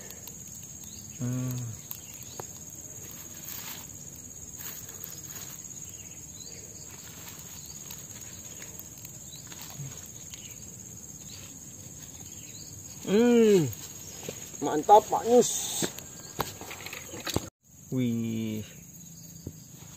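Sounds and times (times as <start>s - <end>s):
faint clicks: 0.0s - 2.7s
high-pitched insect chirring: 0.0s - 16.4s.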